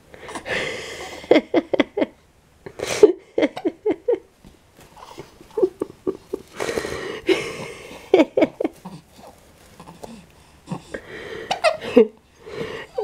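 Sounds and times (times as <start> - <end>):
breathy noise: 6.3 - 13.0.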